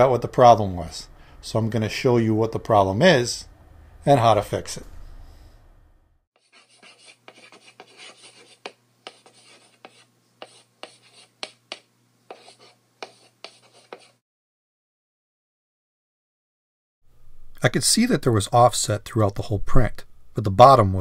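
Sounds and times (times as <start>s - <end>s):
faint low hum: 0.0s - 11.3s
chalk scratching on chalkboard: 6.4s - 14.2s
chalk tapping on chalkboard: 6.4s - 14.2s.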